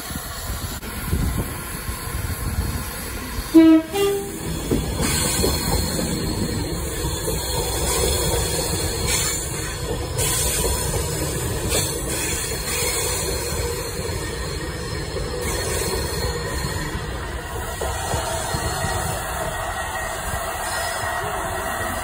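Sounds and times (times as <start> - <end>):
passenger train passing: 0.0 - 22.0.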